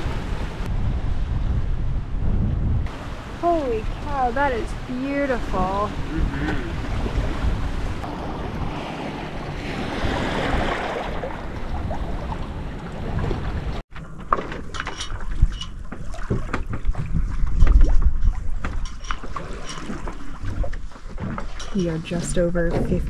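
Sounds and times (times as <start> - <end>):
low rumble: 0.0 - 13.8
sailboat rushing through water: 0.0 - 13.8
wind: 0.0 - 23.0.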